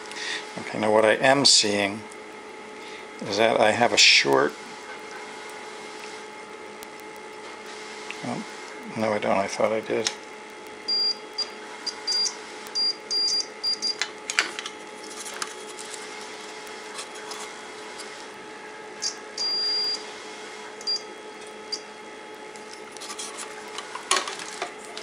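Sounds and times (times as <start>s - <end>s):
multimeter short high beeps: 10.9s - 14.0s, 19.0s - 20.0s.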